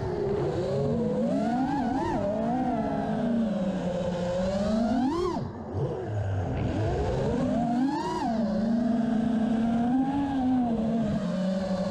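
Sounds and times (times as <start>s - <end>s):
drone motors and propellers whining: 0.0s - 11.9s.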